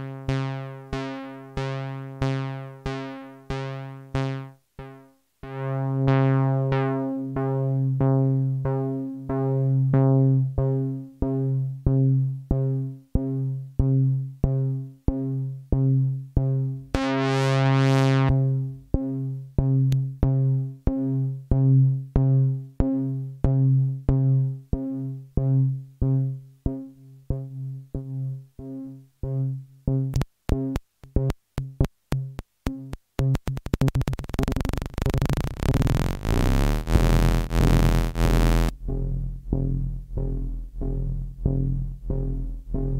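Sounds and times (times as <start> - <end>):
synthesizer low note: 33.4 - 39.0.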